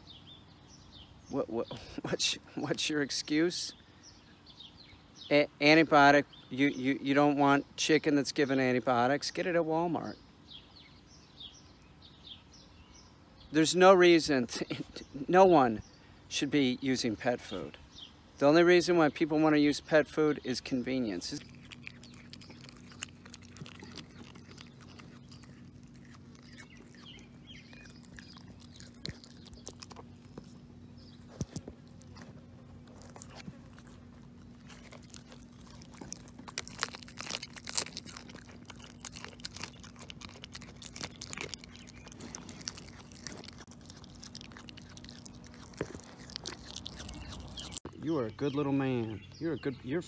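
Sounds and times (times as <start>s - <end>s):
dog chewing bone: 21.2s - 48.0s.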